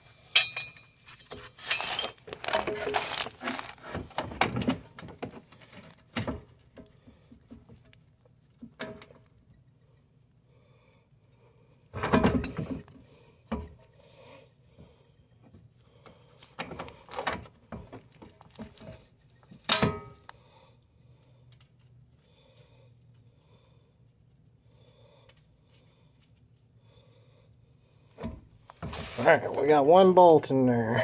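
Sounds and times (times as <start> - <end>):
metal parts clanking: 0.3 - 3.8.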